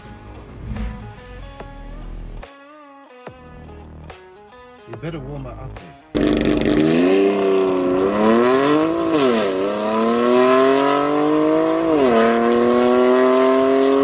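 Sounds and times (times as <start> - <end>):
diesel car engine accelerating: 6.2 - 14.0.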